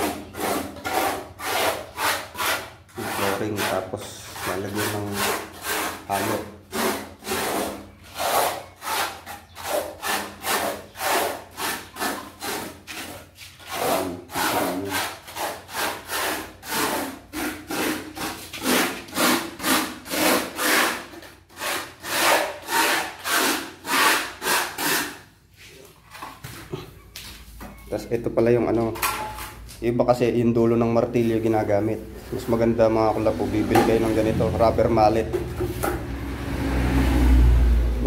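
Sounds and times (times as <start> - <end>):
tool scraping through mortar: 0.0 - 26.2.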